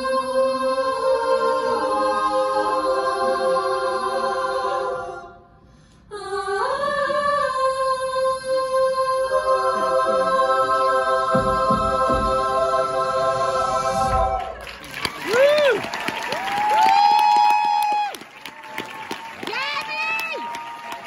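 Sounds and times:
a cappella group singing chords: 0:00.0 - 0:14.7.

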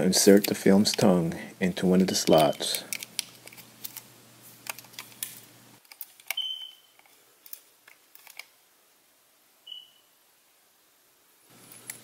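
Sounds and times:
short high beep: 0:06.4 - 0:06.8, 0:09.7 - 0:10.0.

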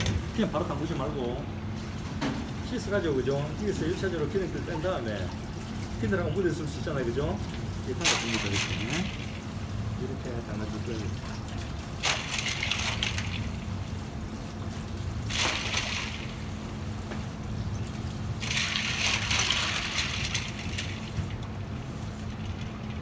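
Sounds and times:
steady low hum: 0:00.0 - 0:23.0
water splashing into steel bowl: 0:07.4 - 0:09.5, 0:10.8 - 0:16.7, 0:17.7 - 0:21.4.

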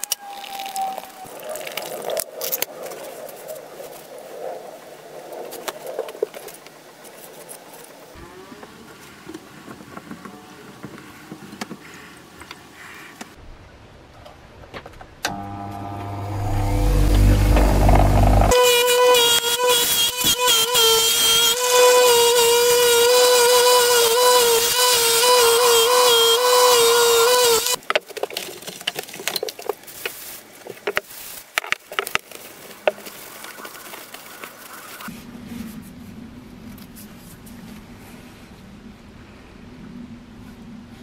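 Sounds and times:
wire wheel grinding steel blade: 0:15.3 - 0:27.8.

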